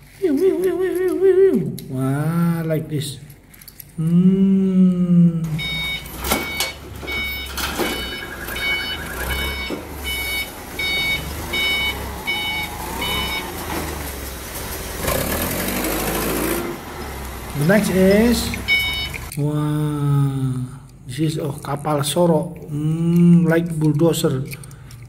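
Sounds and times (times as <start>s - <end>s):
forklift engine rumble: 5.4s - 19.4s
forklift warning beeper: 5.5s - 14.7s, 16.8s - 19.3s.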